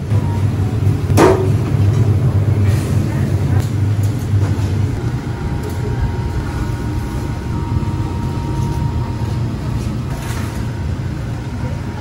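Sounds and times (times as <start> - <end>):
low machinery rumble: 0.0 - 12.0.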